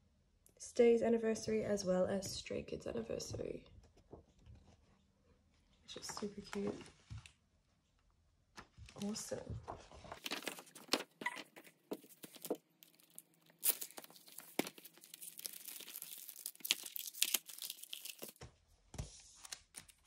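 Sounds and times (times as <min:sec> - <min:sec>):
paper rustling and crinkling: 0:08.6 - 0:20.0.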